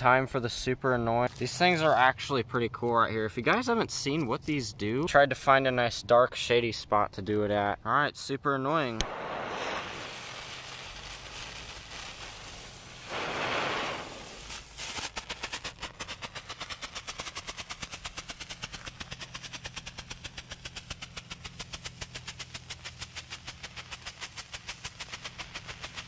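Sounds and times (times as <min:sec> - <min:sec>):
firework fuse hissing: 0:09.0 - 0:26.0
strobe firework popping: 0:09.0 - 0:26.0.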